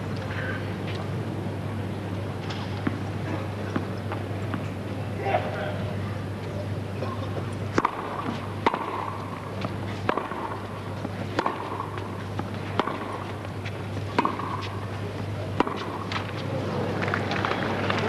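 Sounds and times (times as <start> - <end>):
racquets hitting tennis ball: 7.0 - 18.0
ball bouncing on court: 7.8 - 10.6, 11.3 - 13.4, 14.2 - 14.8, 15.6 - 16.3.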